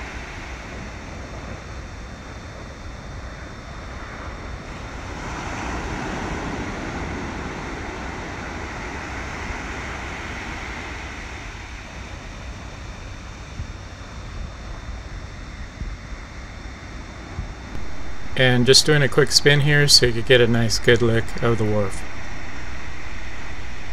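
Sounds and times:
wind rumbling on microphone: 0.0s - 18.4s
steady rushing haze: 0.0s - 23.9s.

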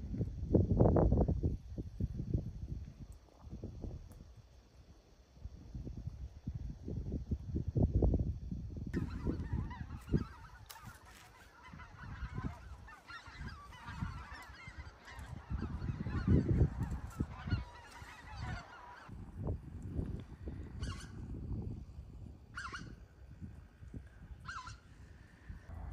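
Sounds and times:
wind buffeting microphone: 0.0s - 4.4s, 5.4s - 25.9s
geese honking: 9.0s - 19.1s, 22.6s - 23.0s, 24.4s - 24.9s.

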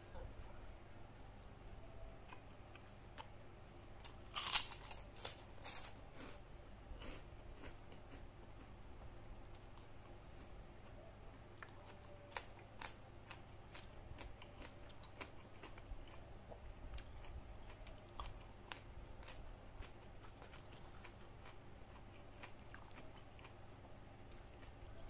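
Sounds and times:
person chewing: 2.3s - 3.3s, 4.0s - 6.4s, 7.0s - 8.2s, 11.6s - 23.6s.

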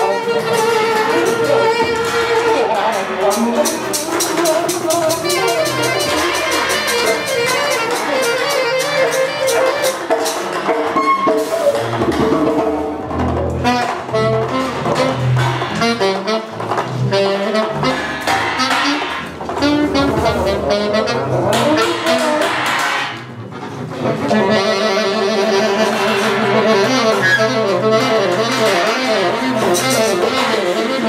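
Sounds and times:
alto saxophone: 0.0s - 12.3s, 13.0s - 31.0s
trumpet: 0.0s - 12.4s, 13.0s - 31.0s
rapid tapping percussion: 0.0s - 31.0s
bowed double bass: 10.9s - 31.0s.

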